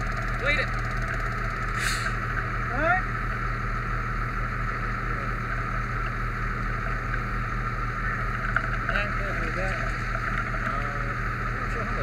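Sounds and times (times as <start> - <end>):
fire truck engine humming: 0.0 - 12.0.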